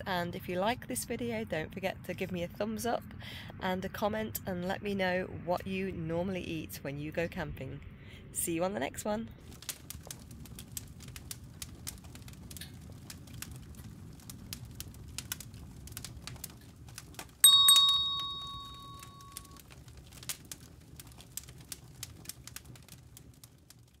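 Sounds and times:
wood fire crackling in a stove: 9.4s - 24.0s
bell-like ding: 17.4s - 19.6s.

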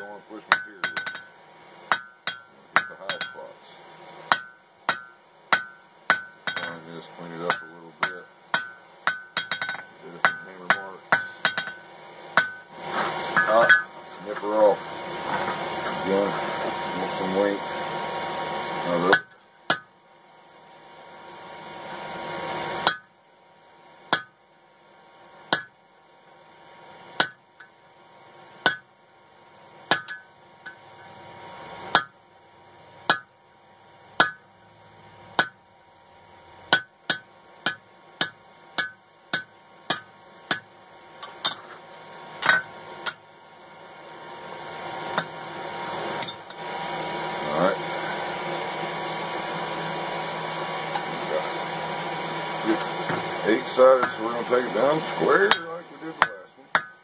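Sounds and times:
hammer striking metal on anvil: 0.0s - 3.5s, 4.3s - 12.7s, 13.3s - 13.9s, 19.0s - 19.9s, 22.8s - 23.1s, 24.1s - 24.4s, 25.5s - 25.8s, 27.2s - 27.4s, 28.6s - 28.9s, 29.9s - 30.8s, 31.9s - 32.2s, 33.1s - 33.3s, 34.2s - 34.5s, 35.4s - 35.6s, 36.7s - 41.7s, 42.4s - 43.2s, 55.4s - 57.0s.

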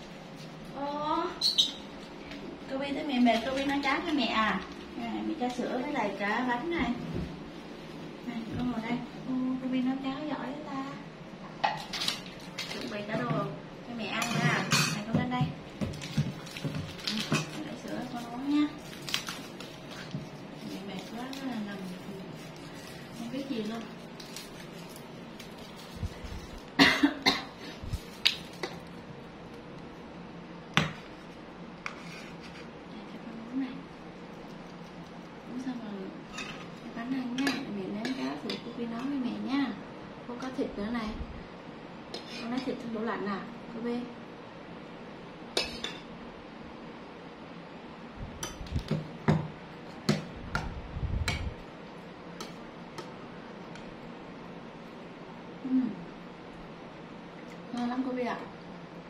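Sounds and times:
woman coughing: 26.8s - 27.7s.

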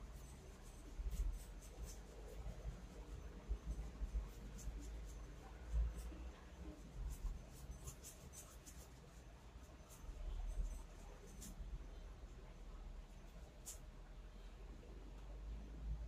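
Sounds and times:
hand tool scratching circuit board: 7.1s - 11.6s.

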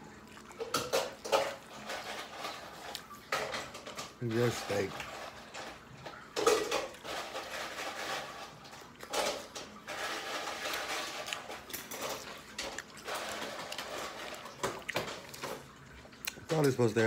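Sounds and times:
man chewing meat: 0.0s - 3.2s, 9.9s - 16.5s.

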